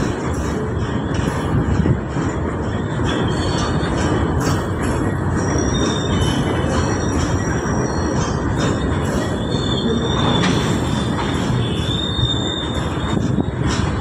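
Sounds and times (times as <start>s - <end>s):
train wheels rumbling on rail: 0.0s - 14.0s
high wheel squeals: 5.0s - 14.0s.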